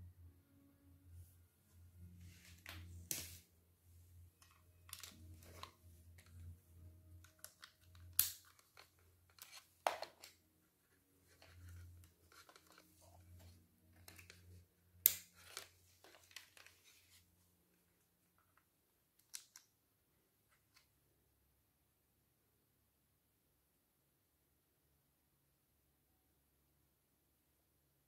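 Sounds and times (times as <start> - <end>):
cable handling rustles: 4.4 - 6.5, 7.2 - 17.3.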